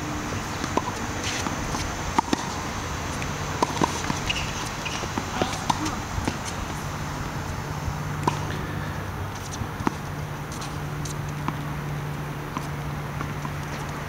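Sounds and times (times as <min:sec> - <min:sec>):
steady low hum: 0:00.0 - 0:14.0
tennis ball bouncing on hard court: 0:00.3 - 0:14.0
tennis ball struck by racquets: 0:00.6 - 0:07.4, 0:08.1 - 0:08.8.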